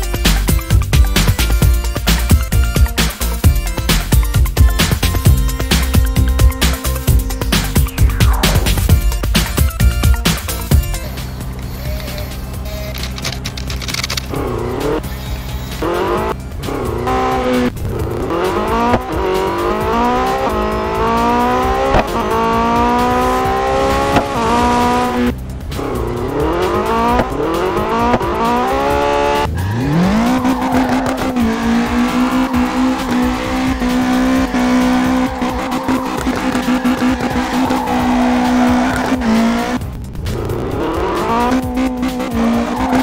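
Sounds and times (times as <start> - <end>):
sports car engine revving: 14.2 - 43.0.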